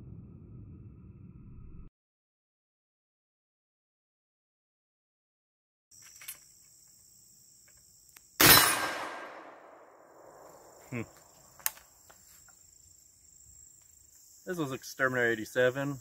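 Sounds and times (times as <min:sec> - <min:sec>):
insects chirring: 0:05.9 - 0:16.0
rifle shot with echo: 0:08.4 - 0:10.6.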